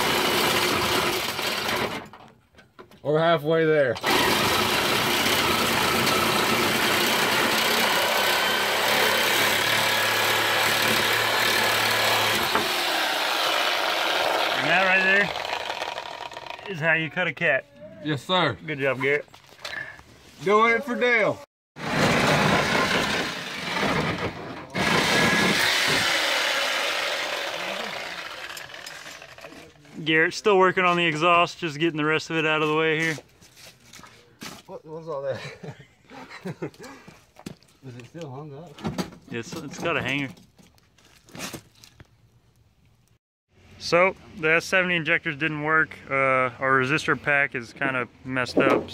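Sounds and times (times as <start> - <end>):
reciprocating saw cutting metal pipe: 4.0 - 16.8, 24.7 - 29.5.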